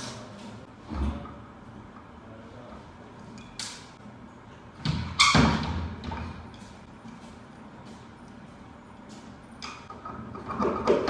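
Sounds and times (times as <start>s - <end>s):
knocks and clanks of a fan motor: 4.8s - 8.0s, 9.2s - 11.0s.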